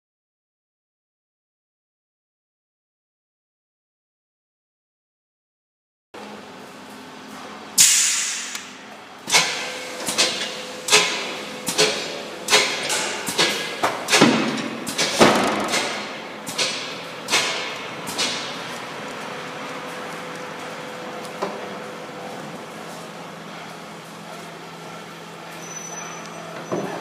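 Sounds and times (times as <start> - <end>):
steady machine hum: 6.2 - 26.6.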